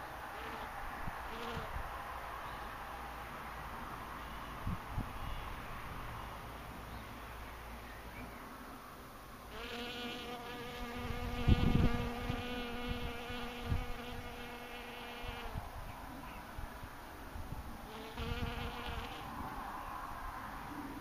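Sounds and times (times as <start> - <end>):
honeybee buzzing: 1.3 - 1.7, 9.5 - 15.6, 17.9 - 19.3.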